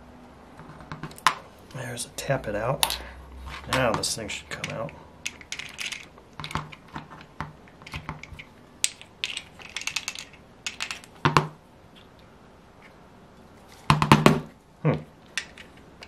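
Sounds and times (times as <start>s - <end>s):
metal taps and small rattles: 2.8s - 12.2s.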